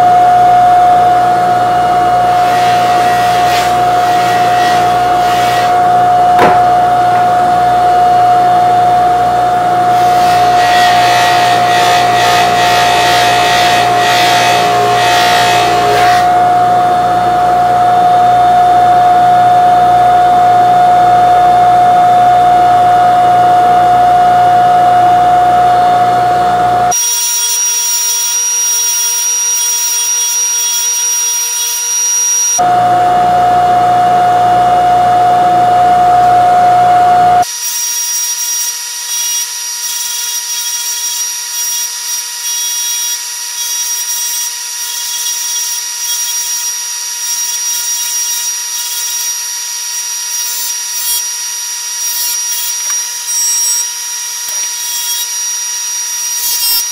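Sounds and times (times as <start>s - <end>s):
polisher motor whining: 0.0s - 37.6s, 38.4s - 56.9s.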